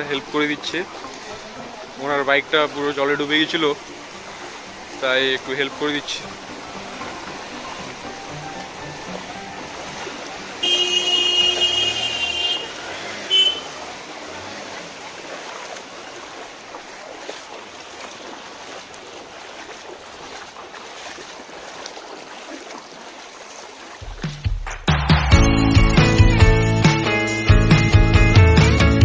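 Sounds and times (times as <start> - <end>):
splashing through floodwater: 0.0 - 25.3
vehicle horn: 10.6 - 13.8.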